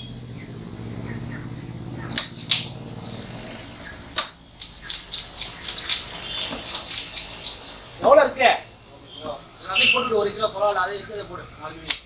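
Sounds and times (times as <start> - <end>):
steady low hum: 0.0 - 12.0
cleaver chopping on wooden block: 4.2 - 7.1.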